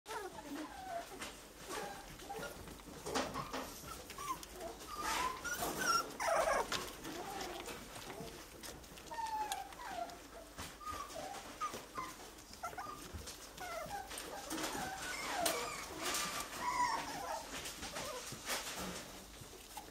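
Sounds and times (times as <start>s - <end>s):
puppies whimpering and squeaking: 0.1s - 19.9s.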